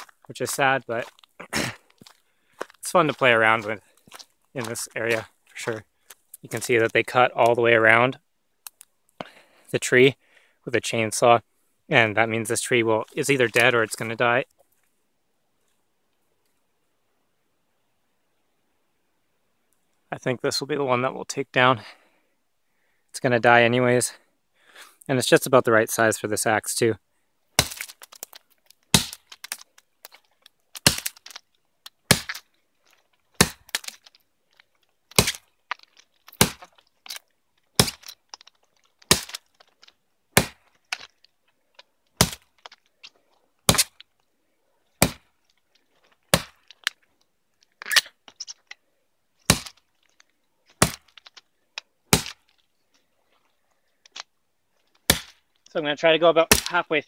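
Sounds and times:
axe chopping into tree trunk: 0:27.6 - 0:28.3, 0:28.9 - 0:29.6, 0:30.8 - 0:31.4, 0:32.1 - 0:32.5, 0:33.4 - 0:34.0, 0:35.1 - 0:35.5, 0:36.3 - 0:36.8, 0:37.8 - 0:38.2, 0:39.1 - 0:39.4, 0:40.4 - 0:40.7, 0:42.2 - 0:42.5, 0:43.7 - 0:44.0, 0:45.0 - 0:45.3, 0:46.3 - 0:46.7, 0:49.5 - 0:49.8, 0:50.8 - 0:51.2, 0:52.1 - 0:52.4, 0:55.0 - 0:55.4, 0:56.4 - 0:56.8.

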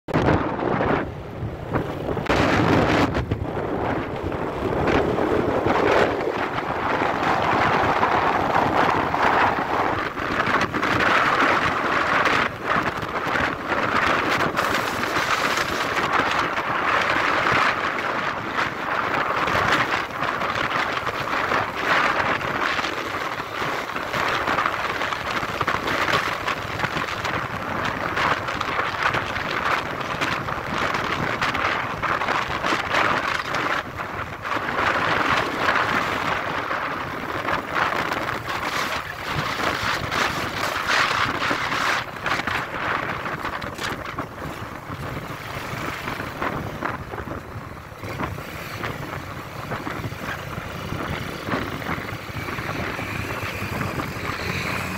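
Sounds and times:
wind buffeting microphone: 0:00.1 - 0:54.9
tyre noise: 0:01.7 - 0:54.9
motorcycle engine: 0:29.8 - 0:54.9.

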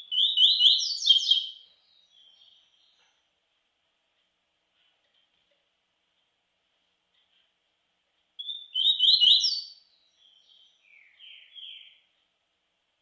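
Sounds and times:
songbird singing: 0:00.0 - 0:03.4, 0:08.2 - 0:12.4.

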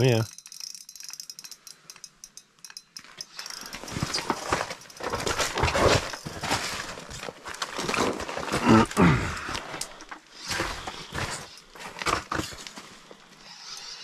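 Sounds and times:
clothing and gear rustling: 0:03.5 - 0:13.4.

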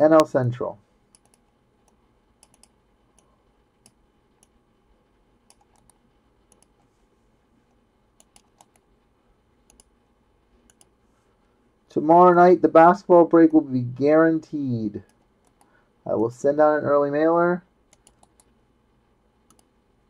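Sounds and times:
computer mouse and keyboard clicking: 0:01.1 - 0:04.6, 0:05.5 - 0:06.8, 0:08.2 - 0:08.9, 0:09.7 - 0:09.9, 0:10.6 - 0:10.9, 0:15.1 - 0:15.7, 0:17.9 - 0:18.6, 0:19.5 - 0:19.7.

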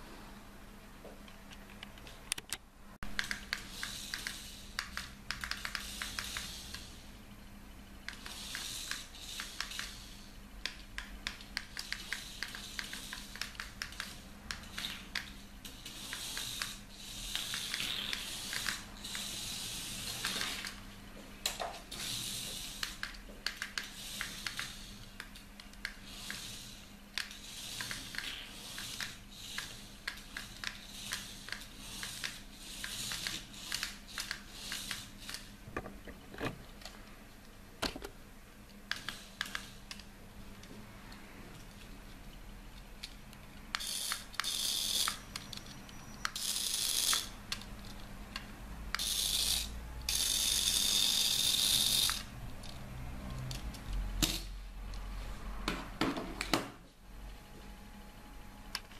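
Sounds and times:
rapid sharp clicks: 0:02.3 - 0:06.9
small electric motor whirring: 0:03.3 - 0:07.0, 0:08.1 - 0:10.3, 0:11.7 - 0:20.8, 0:21.9 - 0:23.1, 0:26.0 - 0:35.5, 0:43.7 - 0:47.6, 0:48.9 - 0:53.6.

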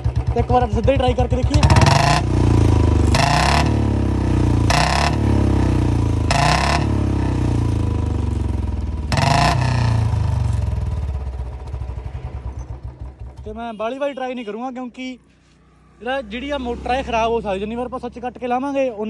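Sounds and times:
motorcycle engine revving: 0:00.0 - 0:13.6.

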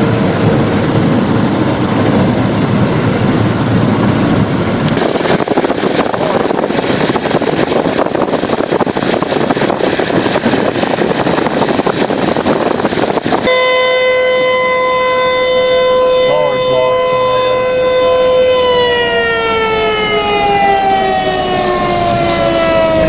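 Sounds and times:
road noise: 0:00.0 - 0:23.0
tornado warning siren: 0:00.0 - 0:23.0
wind: 0:00.0 - 0:23.0.

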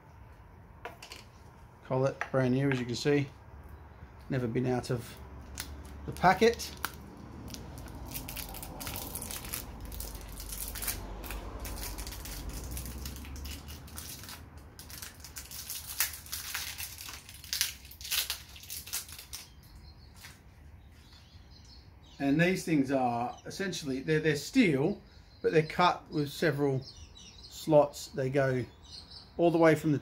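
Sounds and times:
wrapping crinkling: 0:05.5 - 0:19.6.

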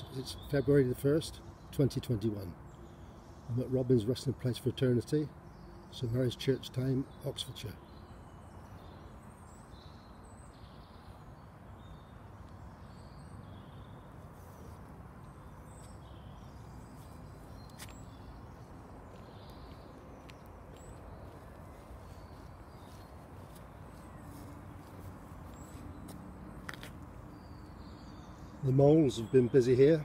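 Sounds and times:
faint bird chirps: 0:07.0 - 0:30.0.

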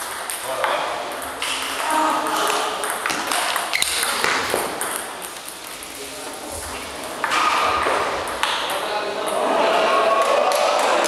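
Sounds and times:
table tennis ball clicking: 0:00.0 - 0:05.8
murmur of voices: 0:00.5 - 0:11.0.

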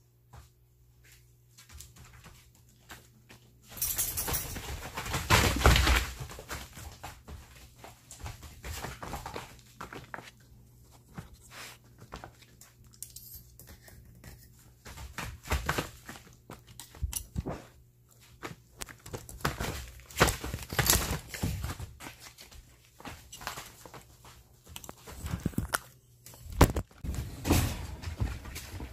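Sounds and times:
puppies knocking and scuffling: 0:03.7 - 0:10.3.

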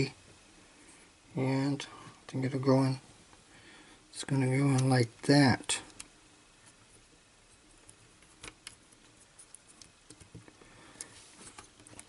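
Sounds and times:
small clicks and taps: 0:07.8 - 0:12.0.

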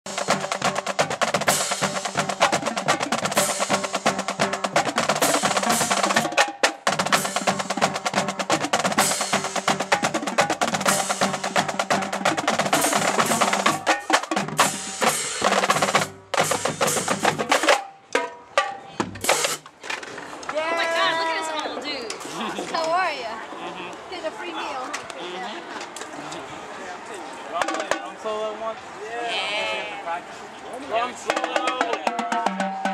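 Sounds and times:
marching drumline cadence: 0:00.1 - 0:19.7, 0:27.5 - 0:28.5, 0:31.0 - 0:32.9.

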